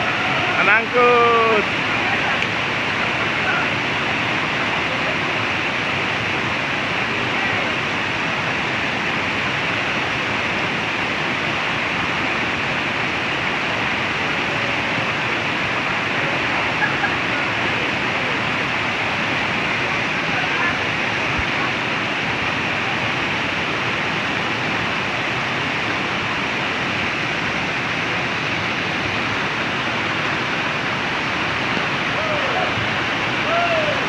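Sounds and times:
whitewater rushing over boulders: 0.0s - 34.0s.

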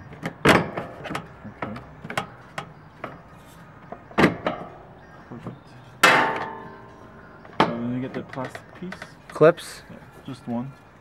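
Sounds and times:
loud metallic clank: 6.0s - 6.9s.

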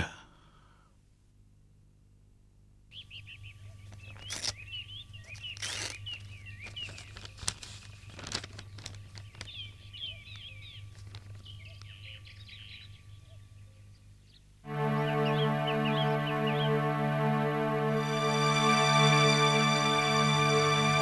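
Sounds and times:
small birds chirping: 2.9s - 16.8s.

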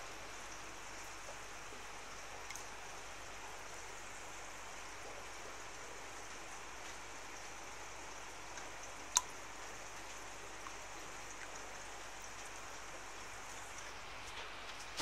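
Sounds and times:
sharp drip click: 8.6s - 9.4s.

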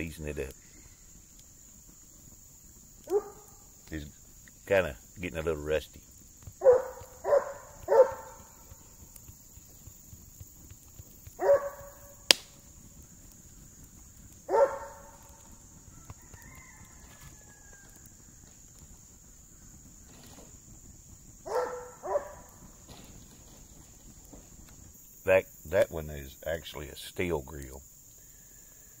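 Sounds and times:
dog barking: 3.1s - 3.5s, 6.6s - 8.5s, 11.4s - 12.1s, 14.5s - 15.2s, 21.5s - 22.5s
sharp snap: 12.3s - 12.6s.

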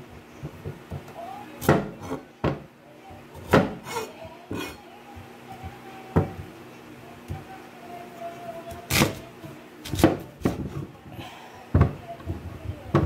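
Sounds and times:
knife chopping on cutting board: 1.6s - 2.6s, 3.4s - 4.7s, 9.8s - 10.7s.

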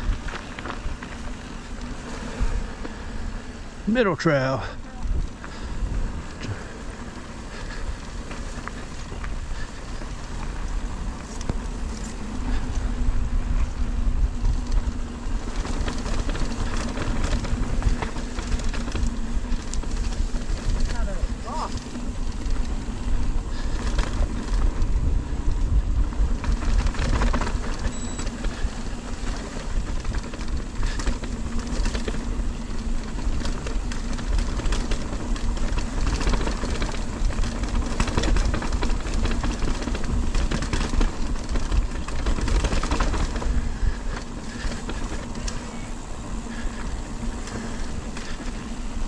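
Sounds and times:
tyres rumbling on dirt: 0.0s - 49.0s
wind buffeting microphone: 4.8s - 49.0s
bike knocks and rattles: 14.2s - 45.8s.

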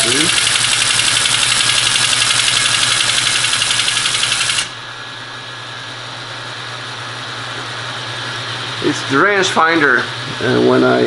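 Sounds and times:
teletype mechanism chattering: 0.0s - 4.7s
motor humming: 0.0s - 11.0s.

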